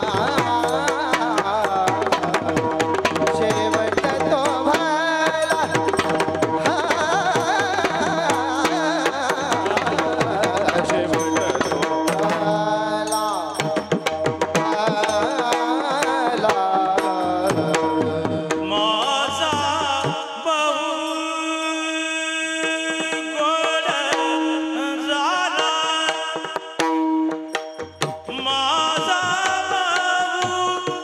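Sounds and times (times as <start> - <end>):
men singing: 0.0 - 26.8, 28.3 - 31.0.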